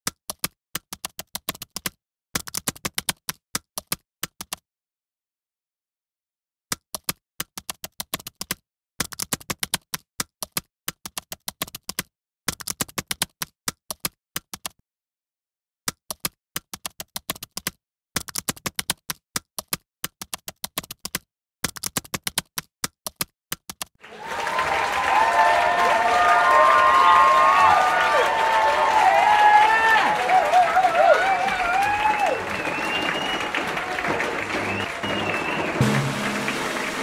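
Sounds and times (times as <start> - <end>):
applause: 24.0 - 37.0.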